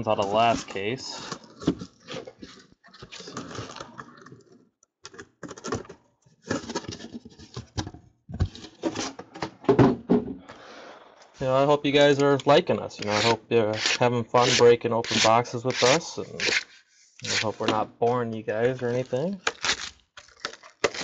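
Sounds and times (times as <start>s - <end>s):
cardboard scraping and rustling: 0.3s - 4.6s, 5.4s - 9.4s.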